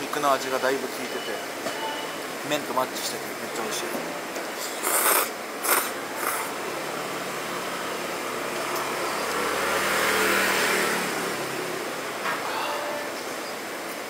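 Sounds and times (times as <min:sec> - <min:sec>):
slurping noodles: 0:04.8 - 0:06.5
motor vehicle passing: 0:06.5 - 0:12.2.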